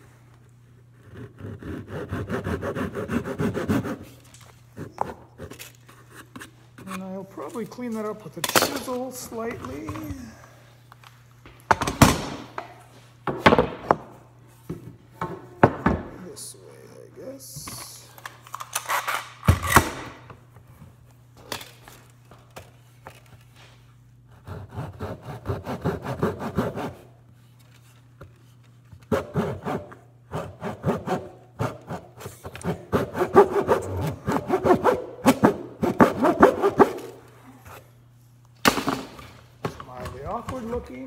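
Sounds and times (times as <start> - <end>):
handsaw cutting wood: 1.0 - 4.2, 24.3 - 27.1, 29.1 - 37.2.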